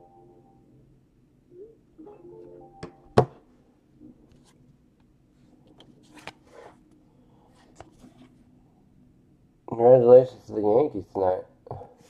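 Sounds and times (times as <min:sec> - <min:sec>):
trading card being handled: 0:05.7 - 0:06.7.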